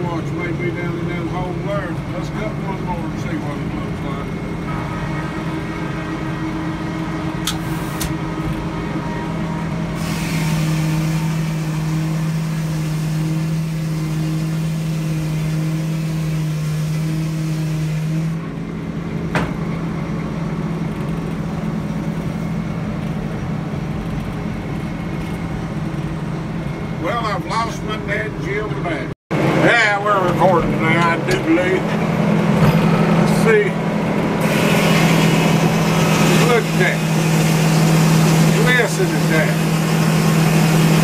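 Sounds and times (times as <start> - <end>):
diesel engine running: 0.0 - 41.0
saw cutting through log: 10.0 - 18.4, 34.4 - 41.0.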